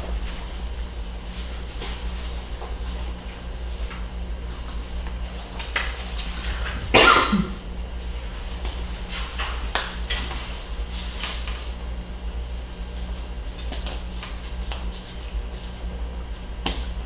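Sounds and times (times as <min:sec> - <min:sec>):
low steady hum: 0:00.0 - 0:17.0
person coughing: 0:06.9 - 0:07.6.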